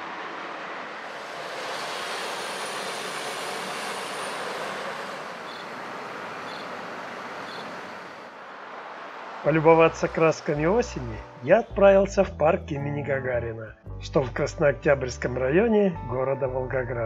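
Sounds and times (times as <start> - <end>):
vehicles passing: 0.0 - 11.9.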